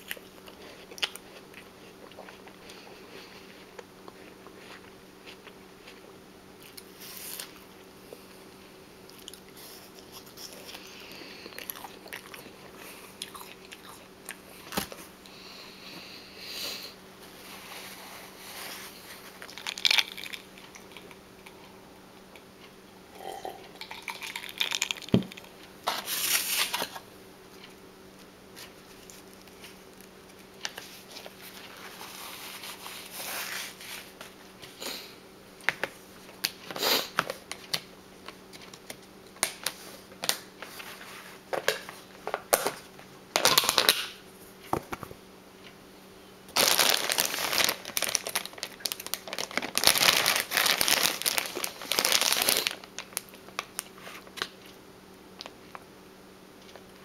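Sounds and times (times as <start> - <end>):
biting and chewing crunchy food: 0.0 - 7.7, 9.0 - 15.5, 18.9 - 21.8, 23.2 - 25.7, 46.5 - 54.8.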